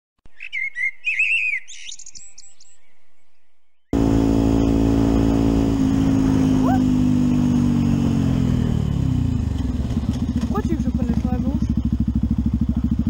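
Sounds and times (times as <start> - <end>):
bird chirps and trills: 0.3 - 5.0, 6.4 - 8.5, 11.3 - 12.2
motorcycle engine running: 4.0 - 13.0.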